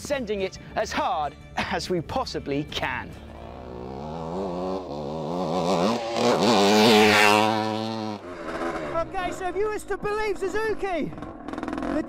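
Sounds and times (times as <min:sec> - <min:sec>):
two-stroke motorcycle engine revving: 0:03.2 - 0:10.0, 0:10.6 - 0:12.0.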